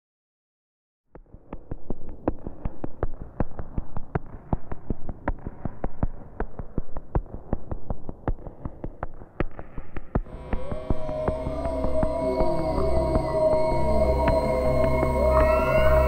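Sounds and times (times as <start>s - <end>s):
low hum: 10.3s - 16.0s.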